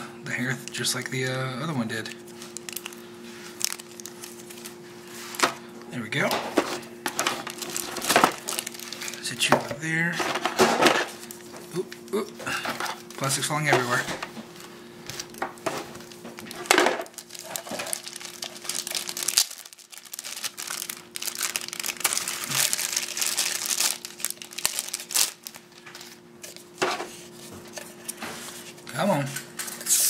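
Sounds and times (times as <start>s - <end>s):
faint steady hum: 0.0s - 29.8s
plastic bags crinkling: 2.3s - 5.4s, 6.7s - 9.4s, 15.2s - 26.8s.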